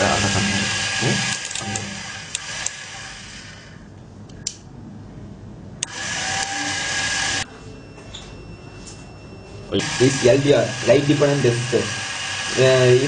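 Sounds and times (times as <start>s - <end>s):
small electric motors whirring: 0.0s - 3.7s, 5.8s - 7.5s, 9.8s - 13.0s.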